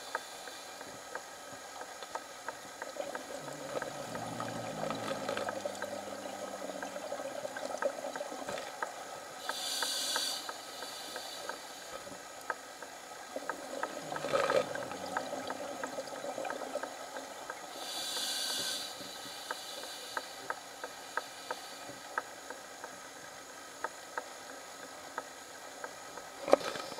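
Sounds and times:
faint clicks: 0.0s - 26.9s
exhaled bubbles underwater: 2.8s - 8.9s, 13.3s - 17.7s
regulator hissing inhalations: 9.4s - 12.0s, 17.7s - 22.0s.

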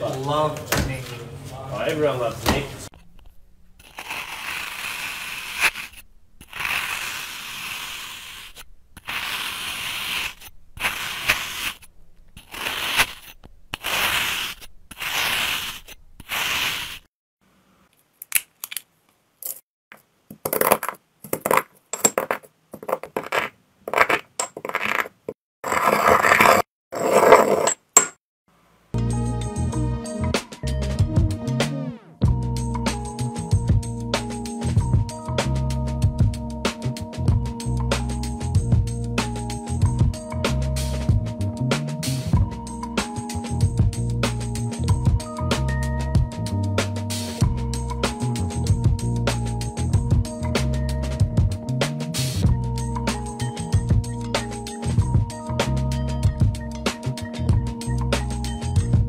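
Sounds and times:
sand crunching in wooden bowl: 3.8s - 17.1s.

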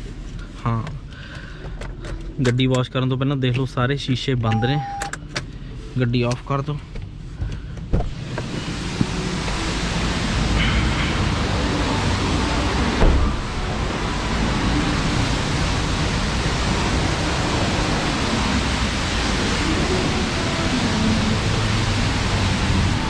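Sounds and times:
car wash spray hiss: 8.1s - 23.0s
thump: 13.0s - 13.4s.

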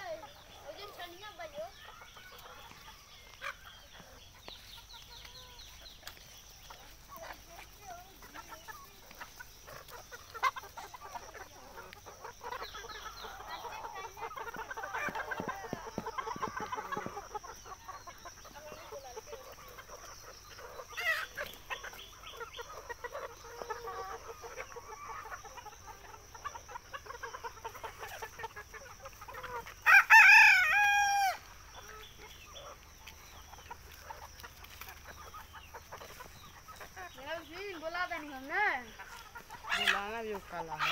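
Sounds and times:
chickens clucking: 0.0s - 40.9s
rooster crowing: 29.8s - 31.5s.

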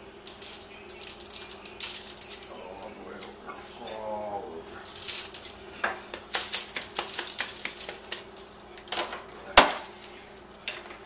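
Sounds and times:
foil pan crinkling: 0.3s - 2.9s, 4.8s - 10.3s
roast thumping into pan: 4.8s - 10.1s.

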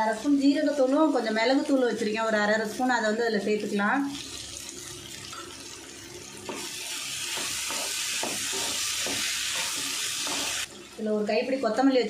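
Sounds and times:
spoon scraping potatoes in a pan: 6.4s - 10.9s.

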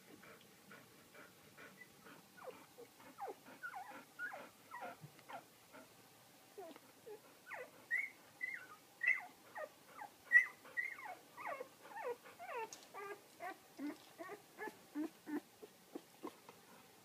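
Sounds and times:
puppies squeaking and whimpering: 7.5s - 9.7s, 10.3s - 15.4s.

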